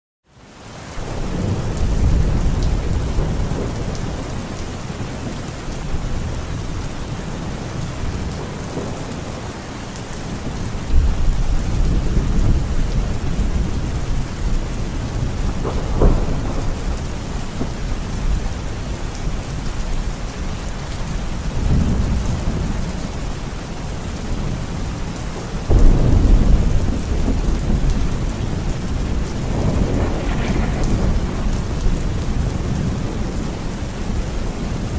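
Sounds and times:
heavy rain pouring: 0:00.3 - 0:34.9
thunder rumbling: 0:01.0 - 0:23.3, 0:24.0 - 0:34.9.

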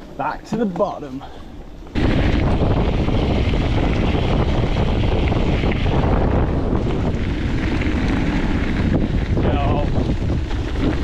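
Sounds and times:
wind buffeting microphone: 0:01.6 - 0:11.0
low rumble: 0:01.9 - 0:11.0.

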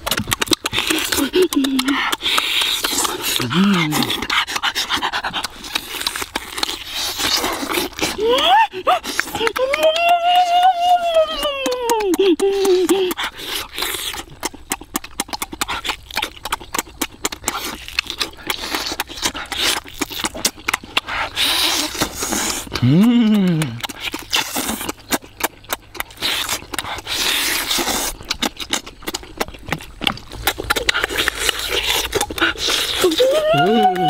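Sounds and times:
wet chewing and lip-smacking: 0:00.0 - 0:34.0
person humming: 0:03.4 - 0:04.1, 0:08.2 - 0:13.2, 0:22.8 - 0:23.8, 0:33.0 - 0:34.0.

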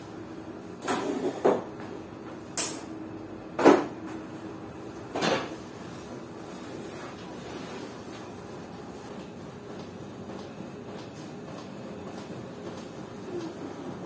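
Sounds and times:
broom sweeping wooden floor: 0:05.7 - 0:09.1.

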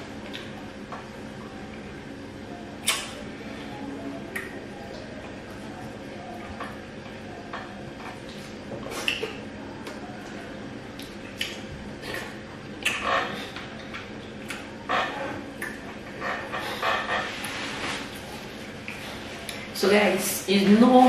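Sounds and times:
chewing and mouth smacks: 0:00.2 - 0:01.0, 0:04.3 - 0:14.8, 0:15.4 - 0:16.5, 0:17.4 - 0:19.7.

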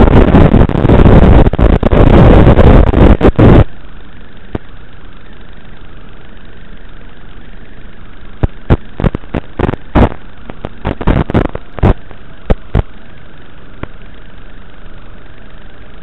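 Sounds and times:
steady hiss: 0:00.0 - 0:16.0
loud sharp pops and crackles: 0:08.4 - 0:12.9.

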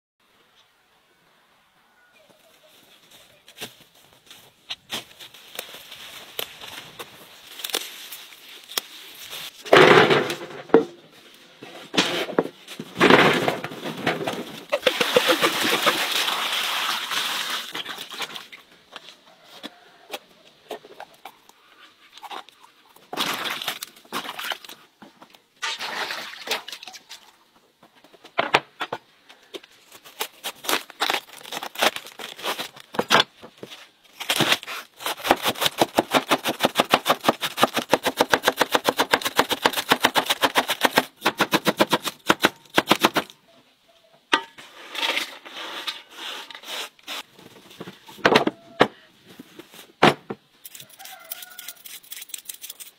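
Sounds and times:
leaves rustling: 0:02.4 - 0:09.7, 0:12.6 - 0:19.4, 0:29.8 - 0:33.0.

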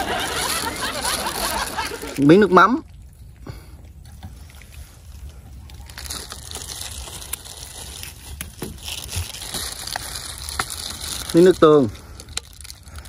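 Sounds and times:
low steady rumble: 0:00.0 - 0:13.0
rustling and crinkling: 0:00.0 - 0:13.0.

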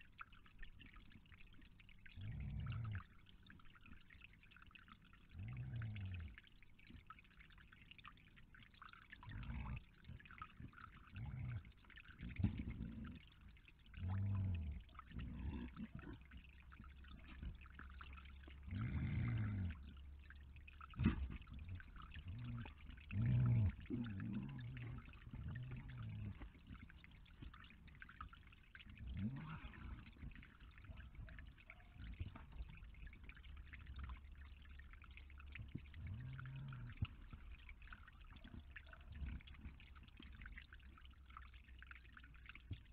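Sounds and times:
fountain water trickling: 0:00.0 - 0:42.9
low animal grunts: 0:14.0 - 0:16.4, 0:18.6 - 0:19.9, 0:21.0 - 0:26.9, 0:29.0 - 0:31.3, 0:35.9 - 0:37.4.

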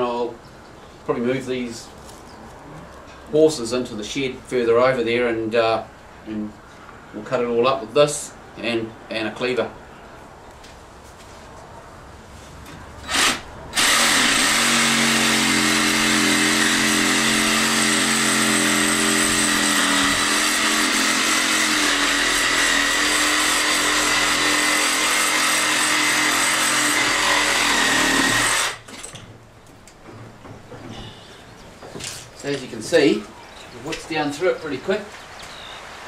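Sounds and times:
reciprocating saw cutting: 0:13.0 - 0:29.1.

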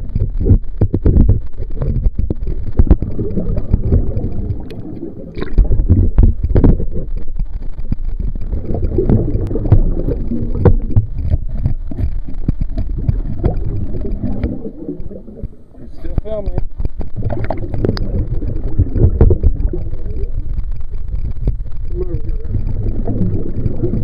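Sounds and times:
underwater river current rumble: 0:00.0 - 0:24.0.

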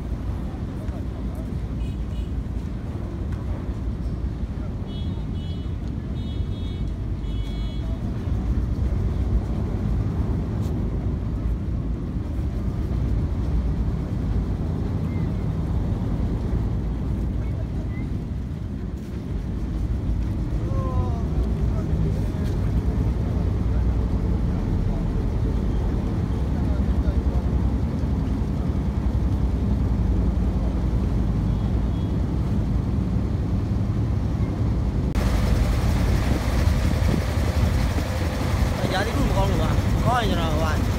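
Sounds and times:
ferry engine rumbling: 0:00.0 - 0:40.9
wind: 0:00.0 - 0:40.9
water: 0:11.3 - 0:40.9
boat engine droning: 0:28.2 - 0:40.9.

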